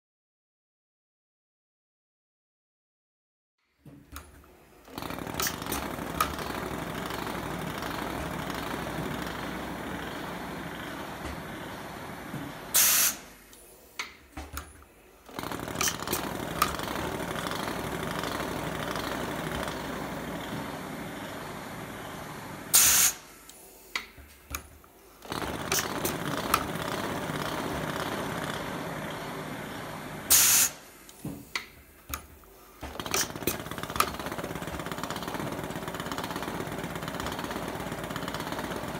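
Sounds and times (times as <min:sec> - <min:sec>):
machine running: 0:04.8 - 0:13.3, 0:15.2 - 0:23.2, 0:25.2 - 0:30.8, 0:32.2 - 0:38.9
short loud hiss: 0:12.8 - 0:13.4, 0:22.8 - 0:23.3, 0:30.3 - 0:30.8
machine clicks: 0:15.3 - 0:20.0, 0:23.9 - 0:28.4, 0:31.1 - 0:38.9.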